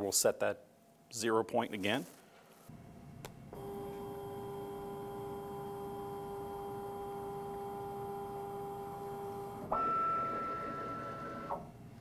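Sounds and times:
stepper motor whine: 0:03.5 - 0:11.7.

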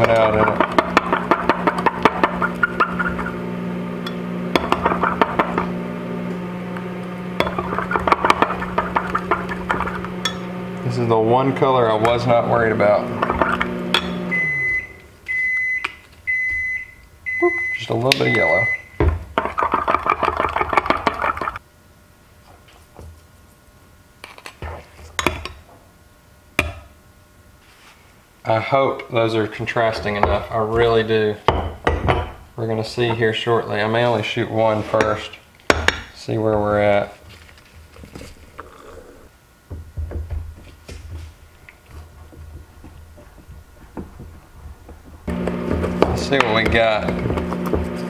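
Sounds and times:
low hum: 0:00.0 - 0:15.4.

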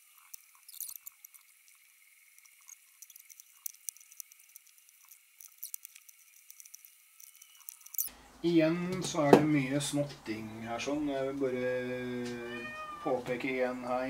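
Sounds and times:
plastic bricks clicking: 0:02.4 - 0:08.1.

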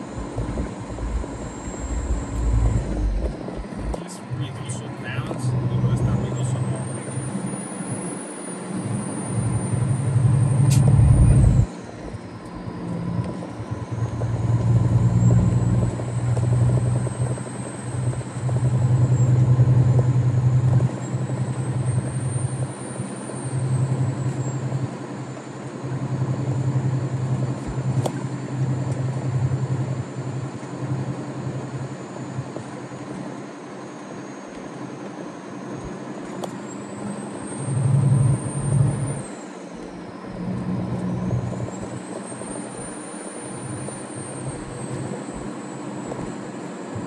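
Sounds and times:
faint high whine: 0:00.0 - 0:47.0
truck diesel engine droning: 0:00.0 - 0:47.0
sharp click: 0:10.7 - 0:10.9.

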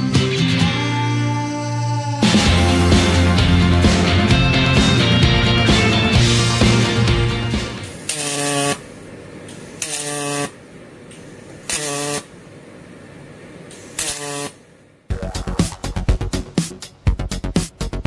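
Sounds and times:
spot welder buzzing: 0:07.4 - 0:12.4, 0:13.7 - 0:14.8.

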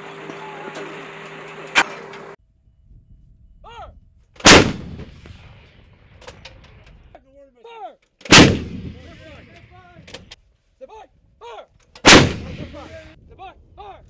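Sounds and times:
person shouting: 0:03.6 - 0:03.9
howitzer blast with echo: 0:08.3 - 0:09.2, 0:12.1 - 0:13.0.

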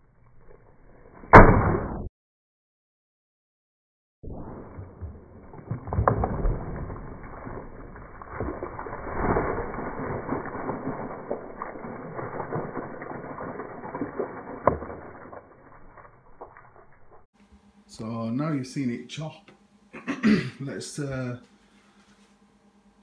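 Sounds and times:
slowed-down water splashing: 0:04.2 - 0:17.3.

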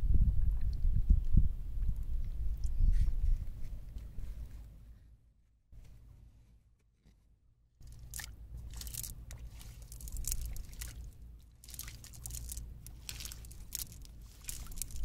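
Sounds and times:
steady low rumble: 0:07.8 - 0:15.0
wet net crunching and rustling: 0:07.8 - 0:15.0.

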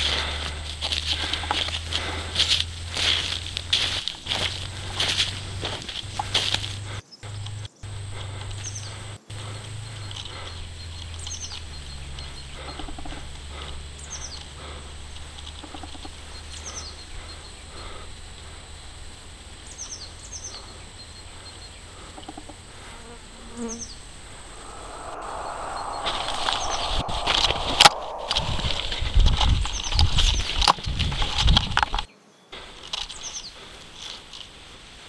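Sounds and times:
low buzzing drone: 0:23.6 - 0:30.0.

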